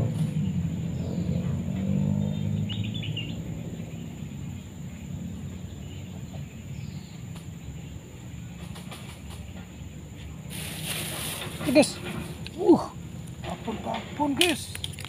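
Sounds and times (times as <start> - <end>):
bird chirps: 0.0 - 10.0
high insect drone: 0.0 - 15.0.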